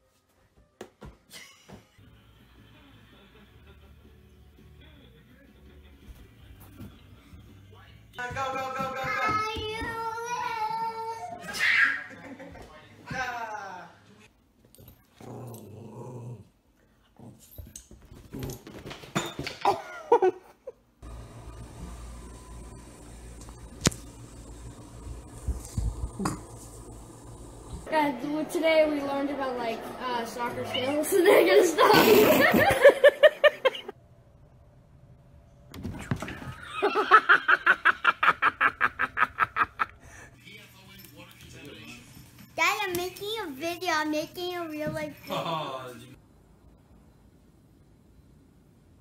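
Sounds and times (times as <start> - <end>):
dog high-pitched cries: 11.3 - 12.1
dog growling: 15.2 - 16.6
person laughing hard: 31.3 - 33.9, 36.6 - 40.0.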